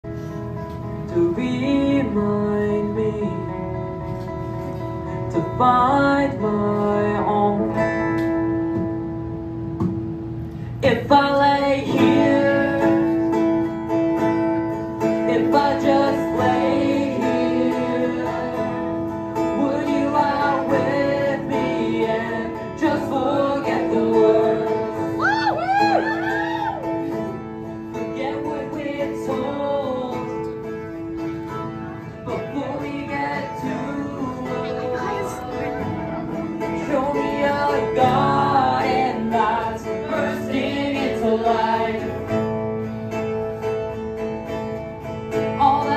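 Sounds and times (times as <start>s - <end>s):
acoustic guitar: 0.0s - 45.9s
man singing into microphone: 1.0s - 3.9s, 5.1s - 8.2s, 10.8s - 13.4s, 15.1s - 25.3s, 28.0s - 30.6s, 32.2s - 42.3s, 45.4s - 45.9s.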